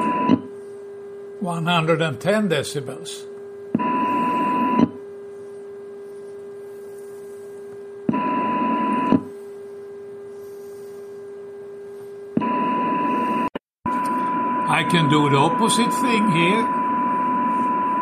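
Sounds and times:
low radio modulation tone: 0:03.3 - 0:18.0
louder higher radio tone: 0:12.4 - 0:18.0
radio hiss: 0:14.6 - 0:16.8.

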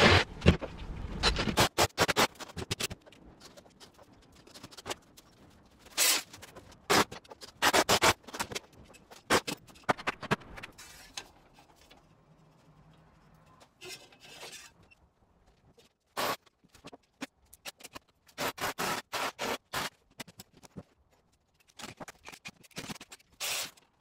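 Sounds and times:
metal rail scraping on tiles: 0:13.8 - 0:14.8.

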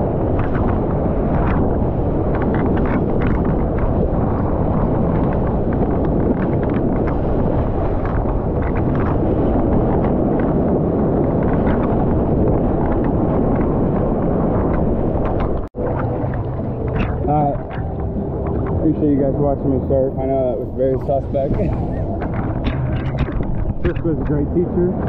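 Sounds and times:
rush of water and wind: 0:00.0 - 0:25.0.

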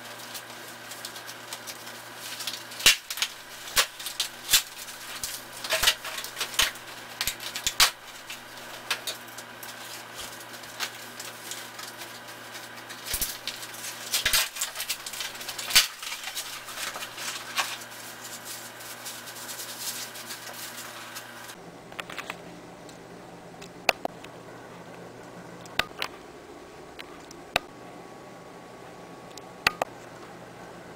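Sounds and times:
paper packaging crinkling: 0:00.0 - 0:22.4
low steady hum: 0:00.0 - 0:30.9.

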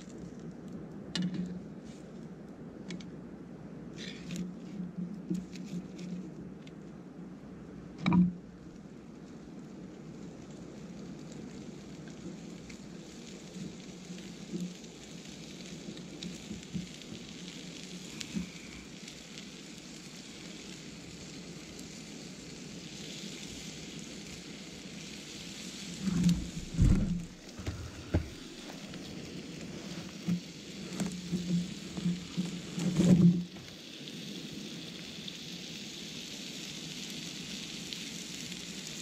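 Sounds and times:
campfire crackling: 0:00.0 - 0:39.0
food sizzling in a frying pan: 0:10.1 - 0:27.5, 0:28.2 - 0:39.0
heavy thumps: 0:26.2 - 0:28.7.

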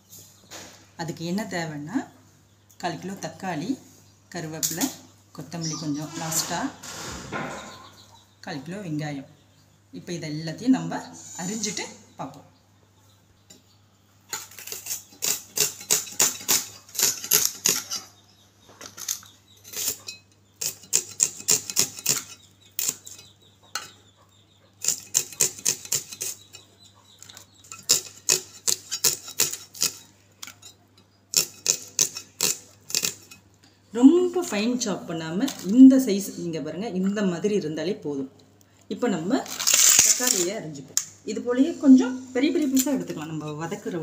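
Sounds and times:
onions being sliced on a blade: 0:14.3 - 0:18.0.

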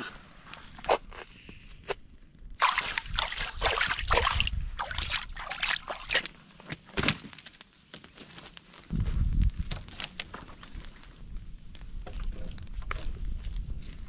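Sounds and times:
creek water splashing: 0:02.6 - 0:06.4.

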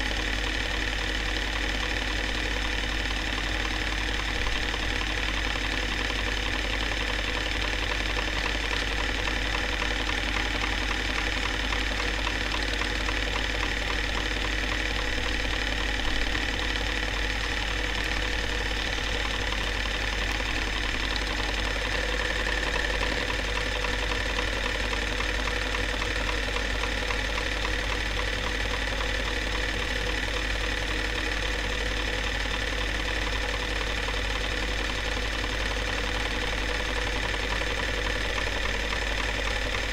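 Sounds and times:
film projector motor whir: 0:00.0 - 0:39.9.

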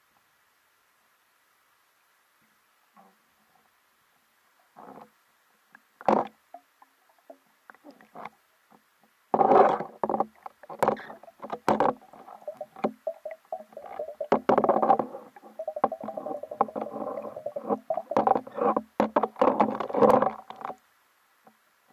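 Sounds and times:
underwater sloshing and bubbling: 0:09.6 - 0:20.8.

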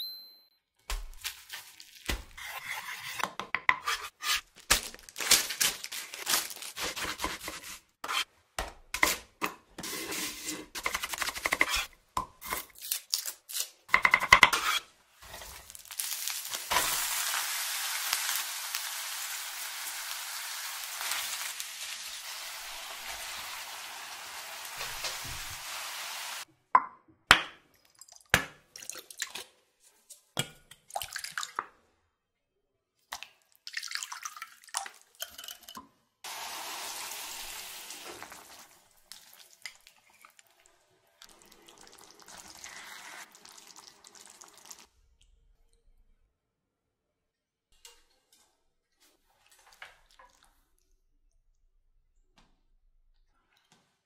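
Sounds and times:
food sizzling in a pan: 0:14.6 - 0:26.5, 0:36.2 - 0:40.2, 0:41.2 - 0:44.9.

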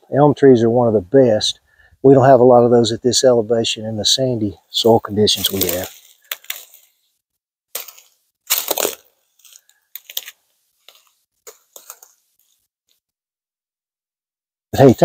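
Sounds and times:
footsteps crunching through dry leaves: 0:05.3 - 0:07.0, 0:07.8 - 0:12.6.

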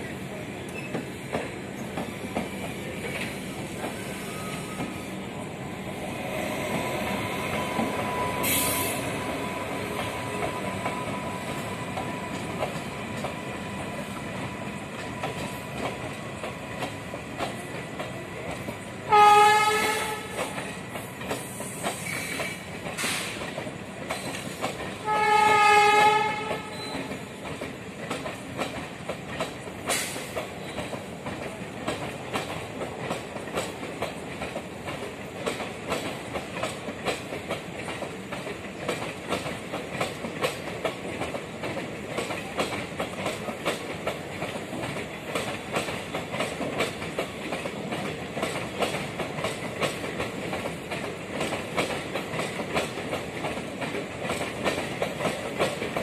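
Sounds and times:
train wheels clicking over rail joints: 0:00.1 - 0:56.0
train horn: 0:07.6 - 0:09.1, 0:19.0 - 0:20.6, 0:25.0 - 0:27.0.

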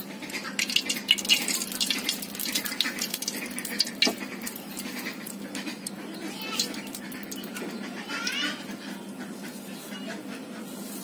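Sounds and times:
hot oil crackling and spitting: 0:00.0 - 0:07.8.

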